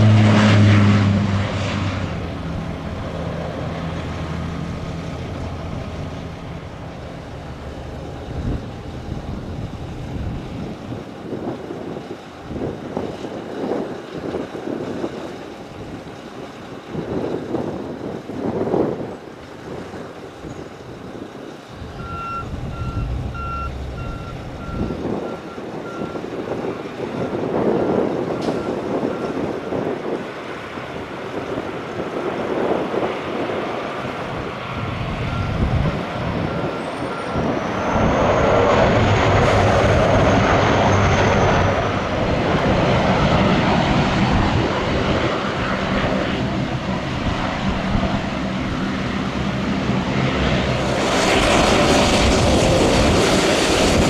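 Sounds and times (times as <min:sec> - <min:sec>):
turboprop engines with high whine: 0:00.0 - 0:54.0
wind buffeting microphone: 0:00.0 - 0:54.0
backup alarm beeping: 0:21.9 - 0:26.2.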